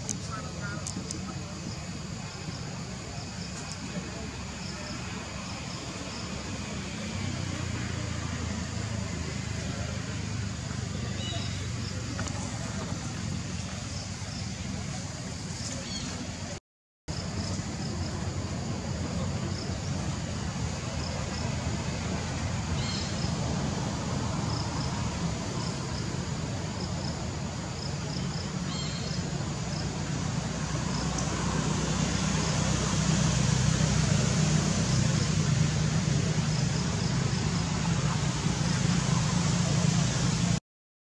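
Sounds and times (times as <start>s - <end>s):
low motor rumble: 17.1s - 40.6s
faint insect chirps: 22.8s - 23.4s, 24.0s - 30.0s.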